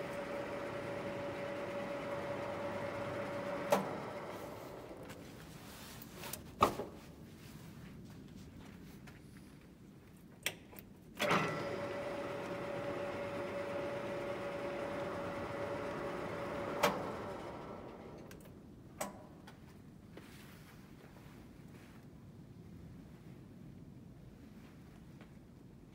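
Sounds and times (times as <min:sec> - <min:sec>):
lathe gear whine: 0:00.0 - 0:05.0, 0:11.2 - 0:18.2
lathe drive clunk: 0:02.6 - 0:05.0, 0:11.2 - 0:18.2.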